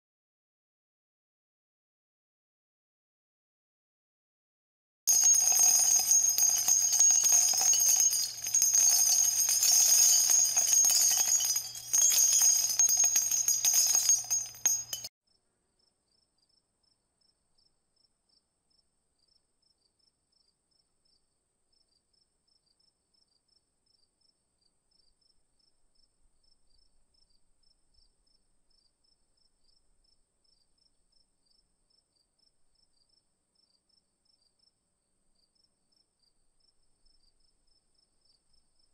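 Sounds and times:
high-pitched ringing shimmer: 5.1 - 15.1.

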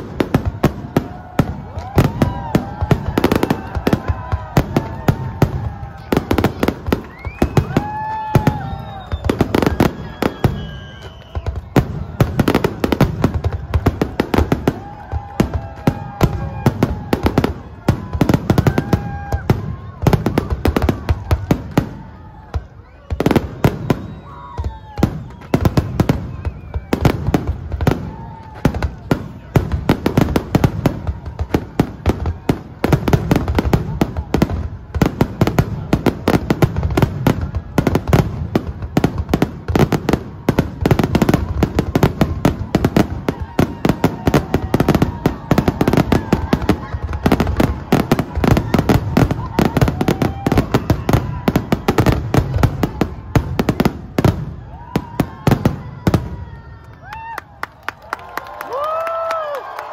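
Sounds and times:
fireworks whistling: 0.0 - 56.2
fireworks bangs: 0.0 - 57.4.

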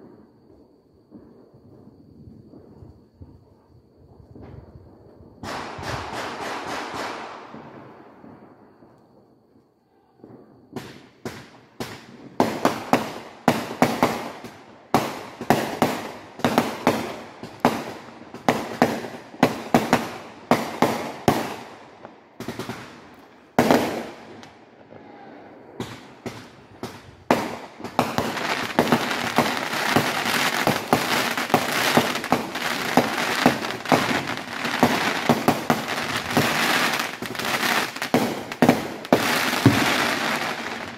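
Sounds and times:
fireworks crackling: 0.0 - 40.9
fireworks banging: 5.4 - 8.4, 10.2 - 24.6, 25.5 - 40.9.

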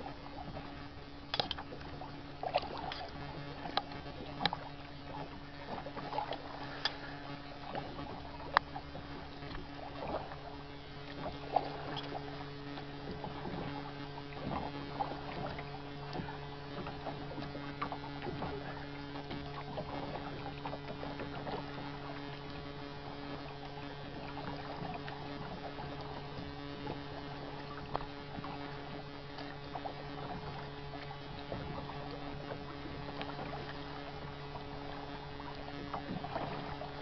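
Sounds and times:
paddle splashing water: 0.0 - 37.0
steady low hum: 0.0 - 37.0
small clicks and knocks: 1.3 - 1.9.

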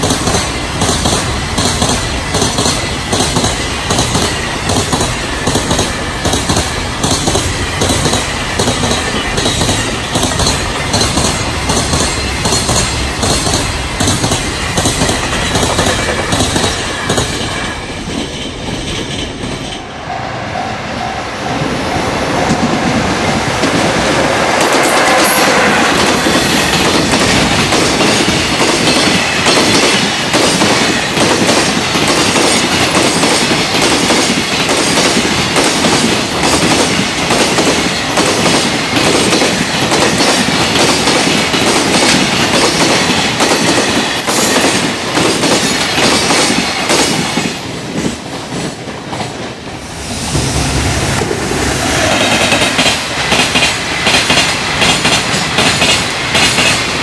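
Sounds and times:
freight train wheels clattering: 0.0 - 19.9, 22.3 - 57.0.

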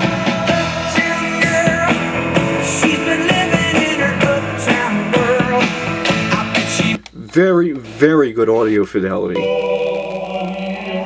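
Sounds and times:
music with steady drum beat: 0.0 - 7.1.

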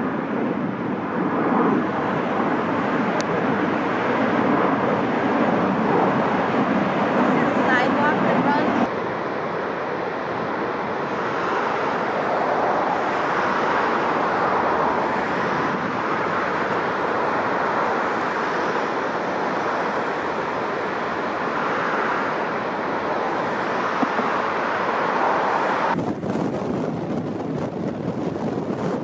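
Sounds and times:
strong wind: 0.0 - 29.0.

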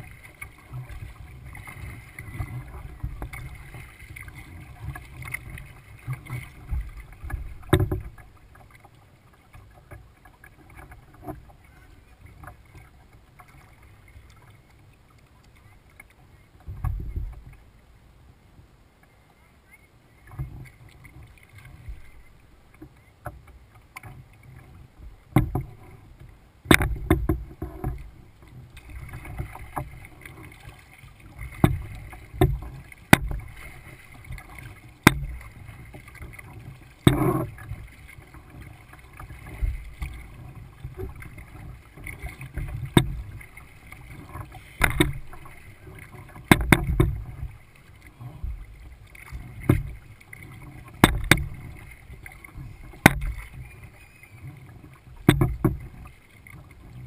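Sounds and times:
paddle splashing: 0.0 - 57.0
water sloshing against hull: 0.0 - 57.0
sharp knocks: 51.0 - 51.5.

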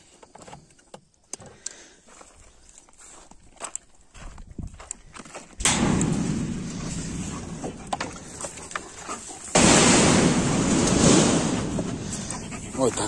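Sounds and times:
loud rushing noise: 9.6 - 12.7.

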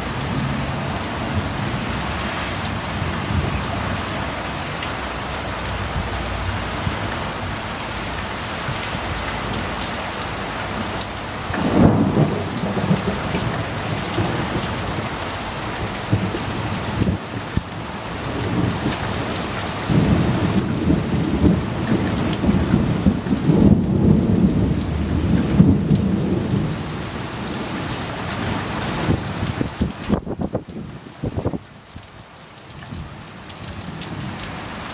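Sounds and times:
heavy rain falling: 0.0 - 34.9
rolling thunder: 10.8 - 19.2, 19.8 - 31.6.

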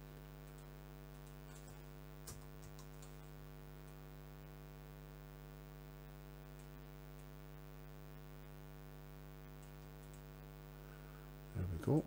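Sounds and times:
faint electrical mains hum: 0.0 - 12.0
faint clicks: 9.6 - 10.3.

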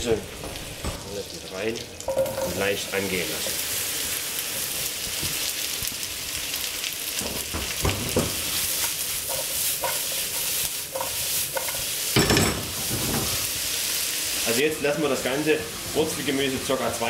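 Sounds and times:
vegetables sizzling in a frying pan: 0.0 - 17.0
spatula stirring: 7.4 - 13.1.

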